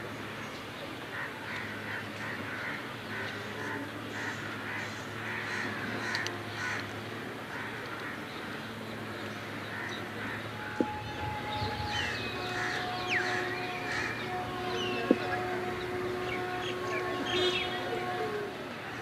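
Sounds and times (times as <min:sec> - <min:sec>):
steady low hum: 0:00.0 - 0:19.0
crows cawing: 0:04.2 - 0:06.8.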